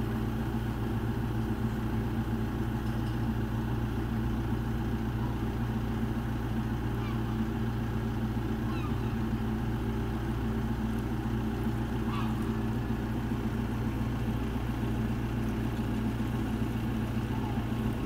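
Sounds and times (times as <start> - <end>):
diesel engine idling: 0.0 - 18.0
faint short high calls: 6.9 - 7.4, 8.6 - 9.4, 12.0 - 12.7.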